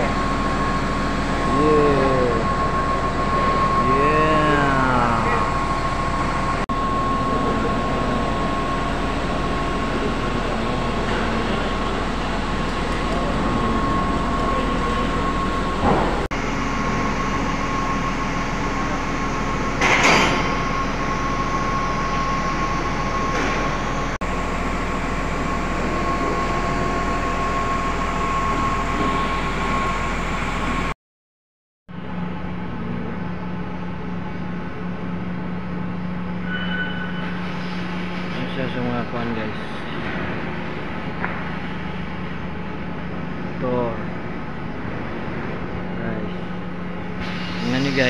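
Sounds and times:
blower rushing noise and whine: 0:00.0 - 0:30.9.

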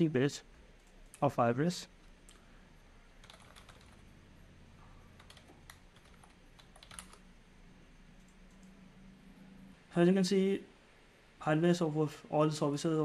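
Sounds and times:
faint keyboard typing: 0:00.7 - 0:01.3, 0:02.0 - 0:02.5, 0:03.1 - 0:04.2, 0:04.8 - 0:07.3, 0:08.2 - 0:08.8.

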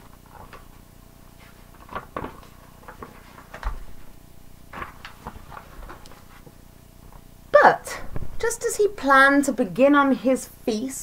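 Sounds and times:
book pages rustling: 0:00.0 - 0:04.1, 0:04.7 - 0:07.2.

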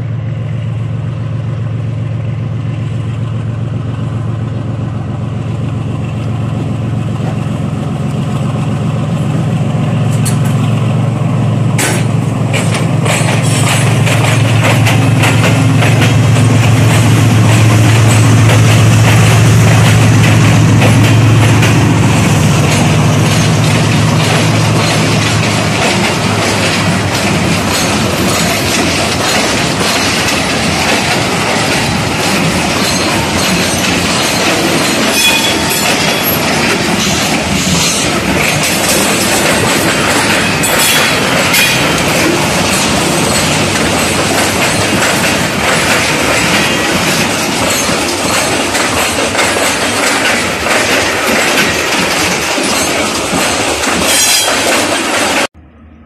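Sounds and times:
train wheels clattering over rails: 0:05.6 - 0:55.6
high wheel squeals: 0:32.7 - 0:38.1.

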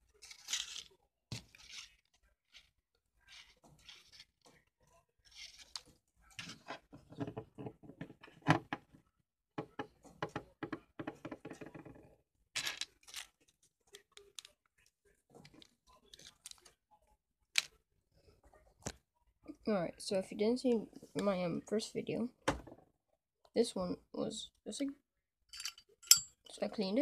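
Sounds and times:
paper rustling and crinkling: 0:00.0 - 0:04.6, 0:05.2 - 0:06.7
objects clicking and knocking: 0:15.3 - 0:16.8.

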